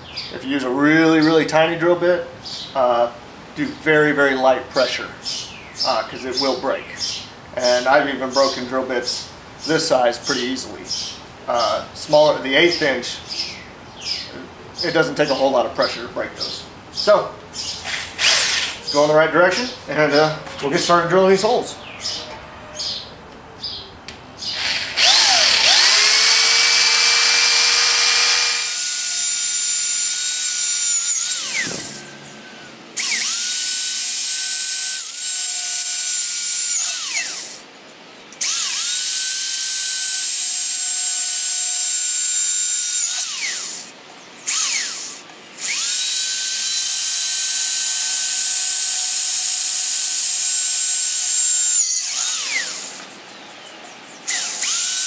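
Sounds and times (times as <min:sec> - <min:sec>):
power drill whining: 0:17.8 - 0:18.8, 0:24.5 - 0:37.7, 0:38.4 - 0:43.9, 0:44.5 - 0:53.3, 0:54.1 - 0:55.0.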